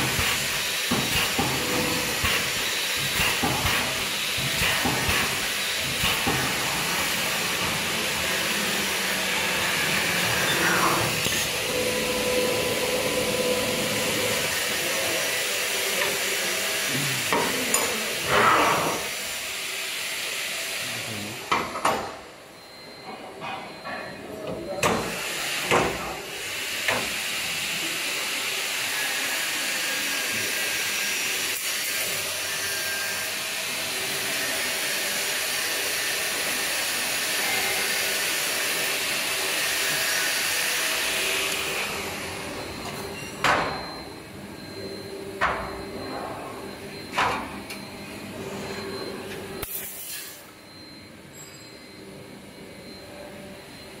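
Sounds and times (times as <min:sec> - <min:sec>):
machinery hissing: 0:00.0 - 0:21.5.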